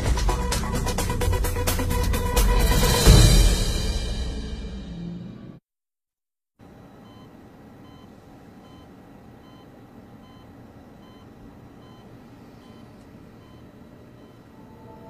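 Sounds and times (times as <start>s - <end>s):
music: 0.0s - 5.6s
faint electronic beeps: 6.9s - 15.0s.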